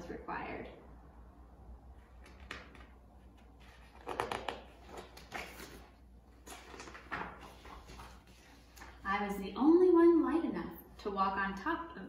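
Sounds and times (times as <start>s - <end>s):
book pages rustling: 2.0s - 9.0s.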